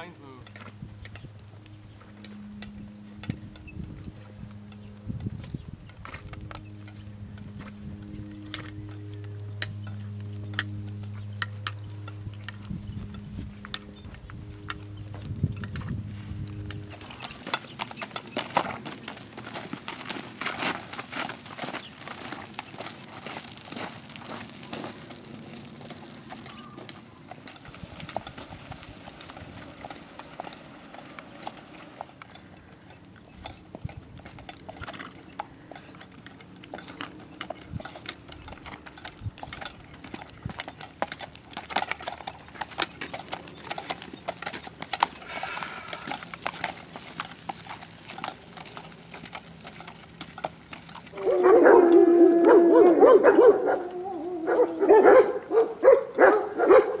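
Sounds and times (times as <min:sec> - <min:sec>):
horse hooves on gravel: 0:00.0 - 0:57.0
dog barking loudly: 0:51.2 - 0:57.0.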